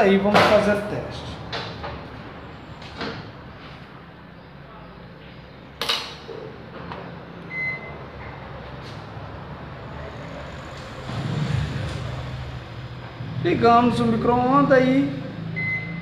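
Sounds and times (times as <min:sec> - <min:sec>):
steady low hum: 0:07.2 - 0:16.0
microwave beep: 0:07.5 - 0:08.0, 0:15.6 - 0:16.0.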